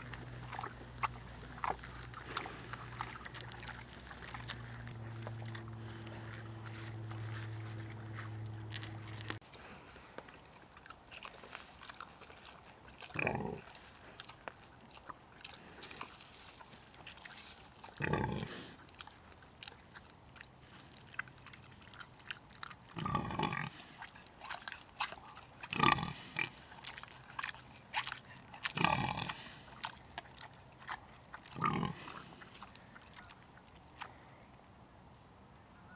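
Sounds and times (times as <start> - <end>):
pig grunting: 0.0 - 9.3, 13.0 - 14.2, 17.8 - 19.2, 20.7 - 33.4
pig chewing and crunching: 0.0 - 34.5.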